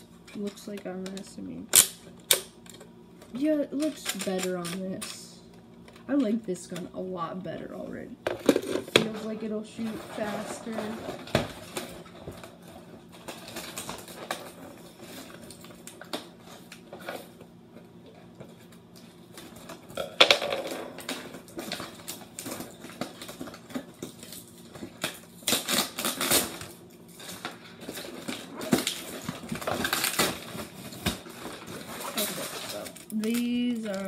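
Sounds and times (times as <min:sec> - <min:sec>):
plastic bag rustling and crinkling: 0:08.6 - 0:17.4, 0:20.9 - 0:34.0.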